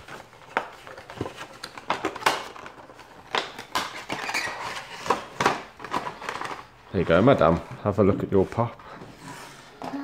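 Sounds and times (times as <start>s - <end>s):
packaging rustling: 0.0s - 7.6s.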